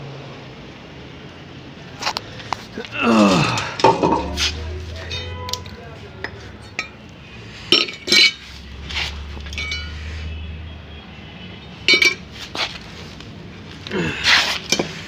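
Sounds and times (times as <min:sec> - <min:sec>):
metal vessels and lids clinking: 0:03.4 - 0:07.1, 0:07.7 - 0:08.6, 0:09.2 - 0:10.0, 0:11.9 - 0:12.3.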